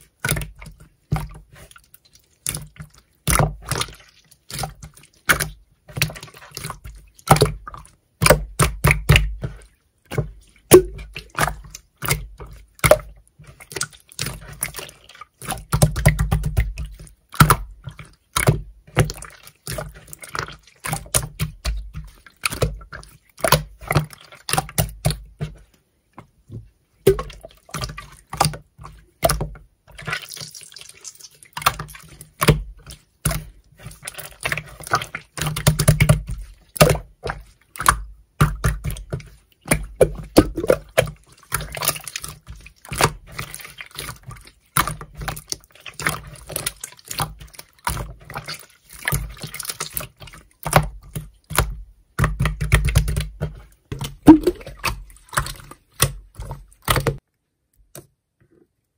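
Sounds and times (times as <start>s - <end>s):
slime squelching and popping: 0.0s - 57.2s.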